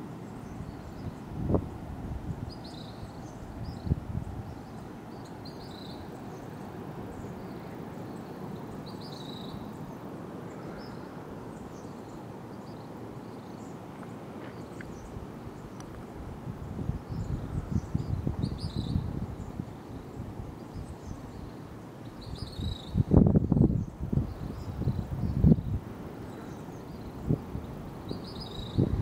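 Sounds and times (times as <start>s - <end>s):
wind rumbling on microphone: 0.0s - 11.8s, 13.6s - 29.0s
small birds chirping: 17.1s - 29.0s.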